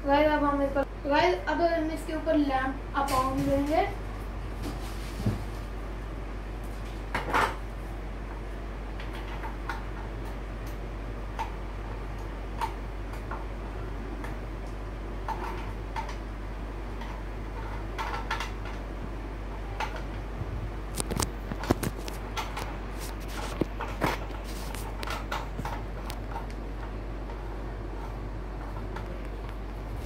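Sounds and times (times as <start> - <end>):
steady fan hum: 0.0 - 30.0.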